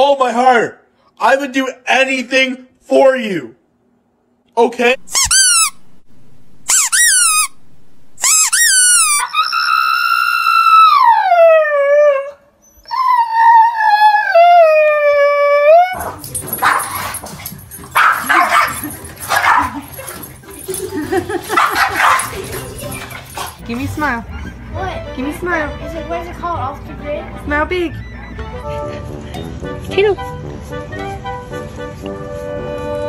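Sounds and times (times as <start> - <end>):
dogs yipping: 8.2 - 11.2, 15.8 - 25.0, 27.9 - 29.4
dogs howling: 9.2 - 23.6
dogs scuffling: 16.0 - 24.2.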